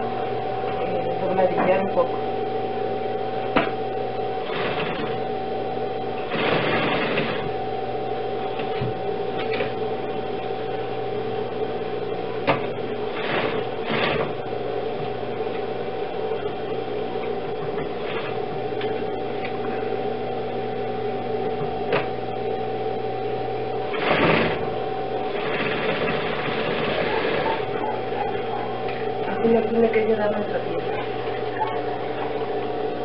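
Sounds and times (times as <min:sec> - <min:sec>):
sewing machine motor hum: 0:03.2 - 0:32.6
sewing machine stitching: 0:04.4 - 0:05.2, 0:06.2 - 0:07.5, 0:12.5 - 0:14.4, 0:23.9 - 0:27.7.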